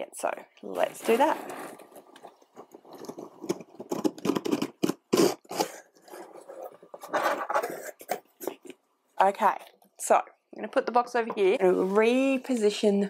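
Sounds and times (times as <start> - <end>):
cardboard box scraping and rustling: 0.9 - 2.2.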